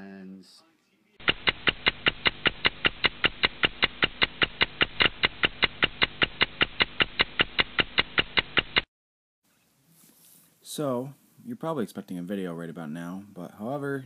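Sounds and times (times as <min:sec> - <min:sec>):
rapid even ticking: 0:01.2 - 0:08.9
faint steady hiss: 0:09.5 - 0:14.0.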